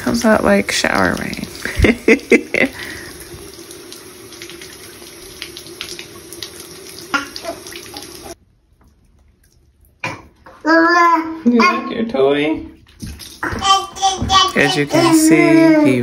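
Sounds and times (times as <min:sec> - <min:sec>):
water sprinkling into bath: 0:00.0 - 0:08.4, 0:12.8 - 0:13.6.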